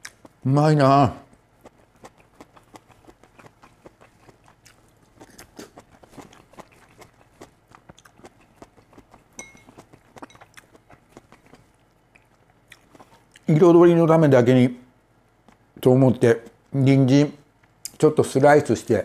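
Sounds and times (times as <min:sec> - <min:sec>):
person chewing food: 0:00.0 - 0:00.5, 0:01.2 - 0:13.5, 0:15.4 - 0:15.7.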